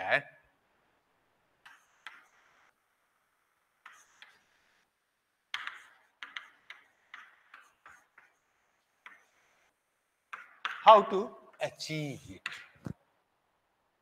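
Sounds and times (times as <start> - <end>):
chalk scratching on chalkboard: 1.6 - 2.7, 3.8 - 4.8, 5.6 - 9.7.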